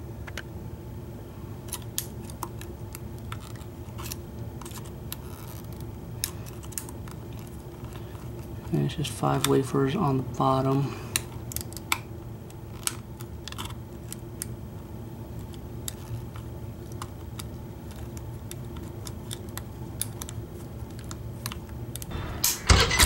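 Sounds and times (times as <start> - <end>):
steady low hum: 0.0 - 23.0
lock bumping open: 22.1 - 23.0.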